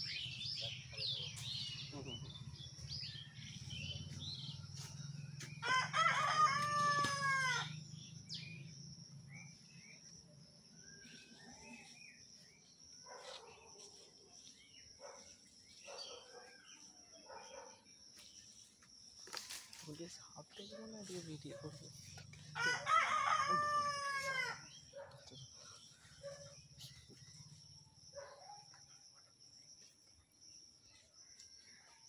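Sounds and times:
small birds chirping: 0:00.0 - 0:32.0
rustling dry leaves underfoot: 0:03.6 - 0:07.6, 0:18.3 - 0:24.6
rooster crowing: 0:05.6 - 0:07.8, 0:22.6 - 0:24.7.

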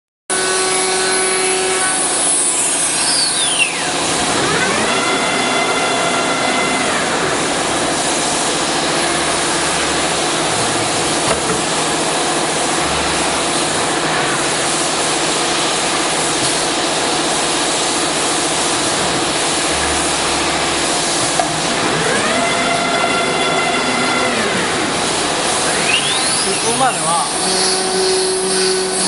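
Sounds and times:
machine hum: 0:00.3 - 0:29.0
router bit hissing through wood: 0:00.4 - 0:12.1, 0:12.8 - 0:29.0
whining spindle tone: 0:00.7 - 0:07.7, 0:19.7 - 0:29.0.

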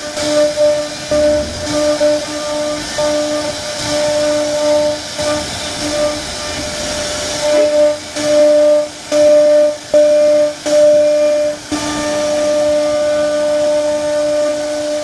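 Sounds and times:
hiss of cutting wood: 0:00.0 - 0:15.0
router spindle whine: 0:00.5 - 0:03.6.

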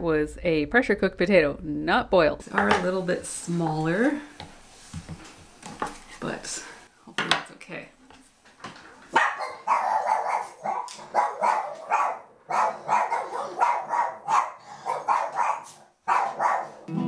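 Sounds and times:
dog barking: 0:09.1 - 0:16.9.

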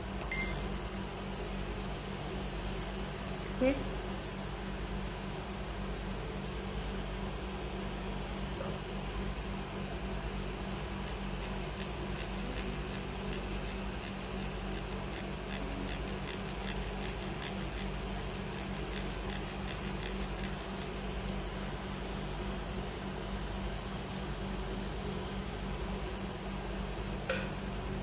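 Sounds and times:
tattoo pen humming: 0:00.0 - 0:28.0
needle scratchy ticks: 0:11.0 - 0:21.0.

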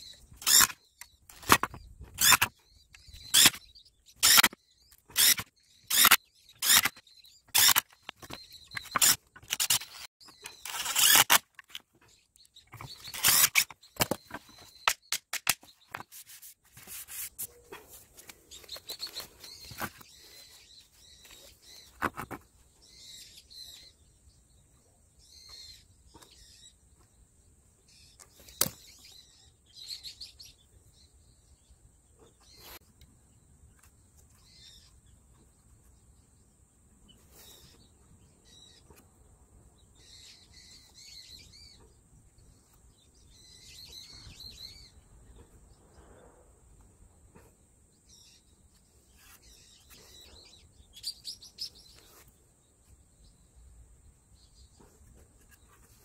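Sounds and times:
metal tool scraping squeaks: 0:00.4 - 0:00.8, 0:04.2 - 0:11.8, 0:12.7 - 0:15.1.

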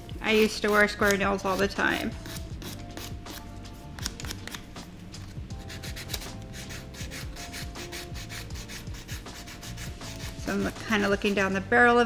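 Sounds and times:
nail file rasping on nails: 0:00.3 - 0:11.1.

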